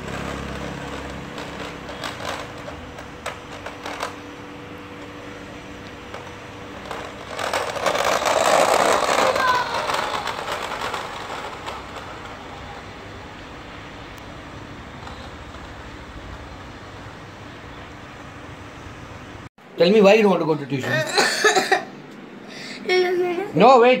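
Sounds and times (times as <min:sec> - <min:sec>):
scooter rolling over asphalt: 0:00.0 - 0:13.4, 0:14.2 - 0:17.1.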